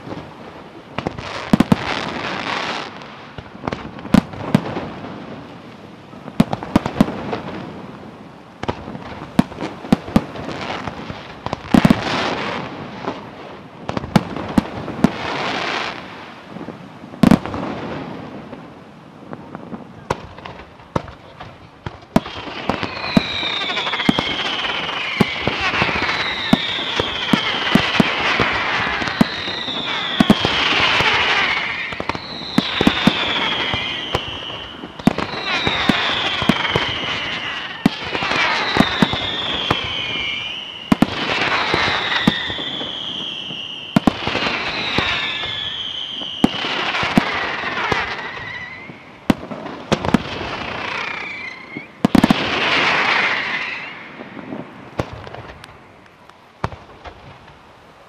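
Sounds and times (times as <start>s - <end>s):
fireworks bangs and crackle: 0.0s - 58.0s
falling firework whistle: 22.2s - 55.6s.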